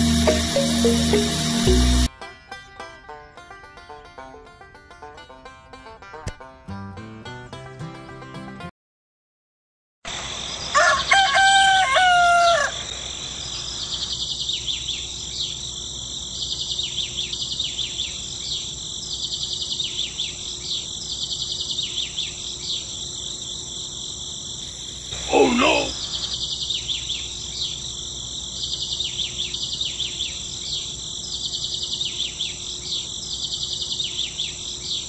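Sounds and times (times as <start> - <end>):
high insect drone: 0.0 - 2.1, 22.7 - 28.7
rooster crowing: 10.7 - 12.9
birds chirping: 24.6 - 27.8.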